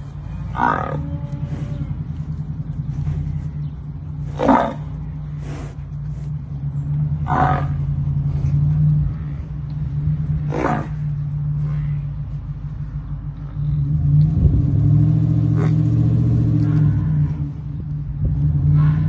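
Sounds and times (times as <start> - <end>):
water buffalo grunting calls: 0.0 - 6.2, 7.2 - 12.2, 18.6 - 19.0
low rumble: 0.0 - 19.0.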